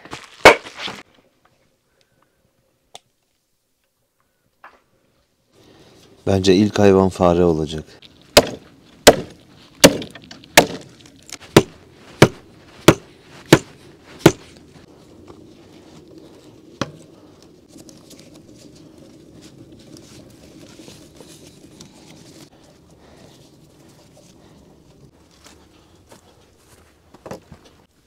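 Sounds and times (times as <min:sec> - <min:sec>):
hatchet striking wood: 0:08.4 - 0:14.4.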